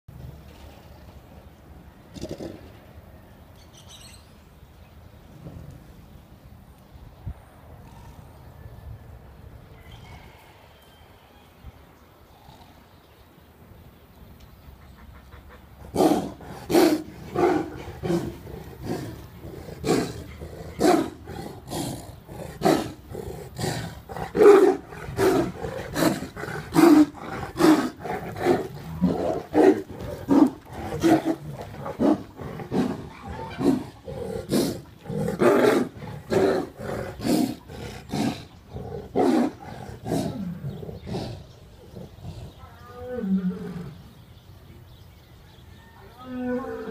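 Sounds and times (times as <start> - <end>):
big cats roaring and snarling: 15.8 - 44.2, 46.2 - 46.9.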